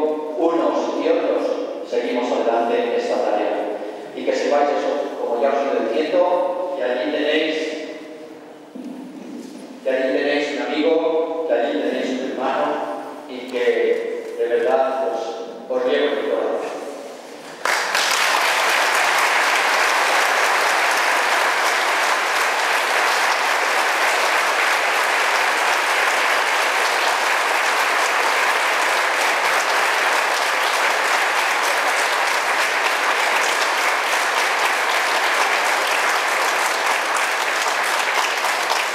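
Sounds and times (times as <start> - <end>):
crowd applauding: 17.5 - 38.9.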